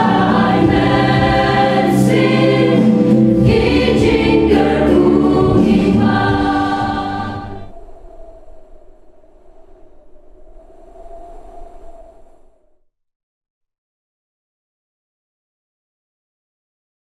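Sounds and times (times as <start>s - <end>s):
church choir singing: 0.0s - 7.7s.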